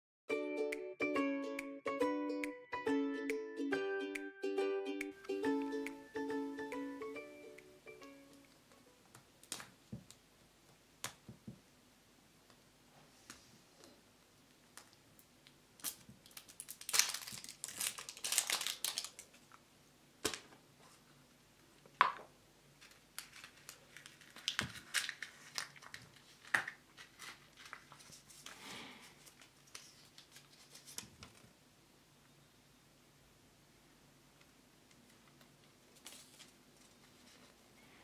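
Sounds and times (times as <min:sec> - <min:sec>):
plastic wrap tearing: 0:15.8 - 0:19.4, 0:22.8 - 0:28.5
cellophane crinkling: 0:15.8 - 0:19.6, 0:22.8 - 0:31.5.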